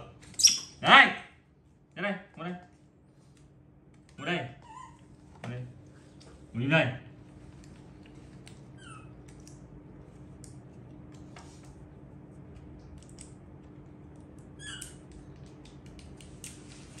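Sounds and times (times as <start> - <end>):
faint steady hum: 0.0 - 17.0
baby monkey squeaking: 0.4 - 0.8, 4.6 - 5.0, 8.8 - 9.1, 14.6 - 15.0.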